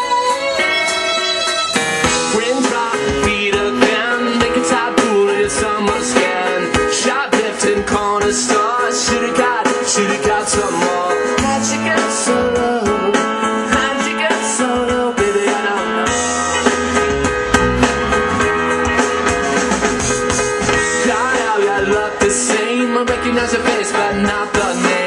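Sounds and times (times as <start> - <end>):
amplified guitar: 0.0 - 5.8, 15.9 - 21.9
drum kit: 1.7 - 13.3, 14.4 - 25.0
man singing lead vocal: 2.1 - 16.4, 20.8 - 25.0.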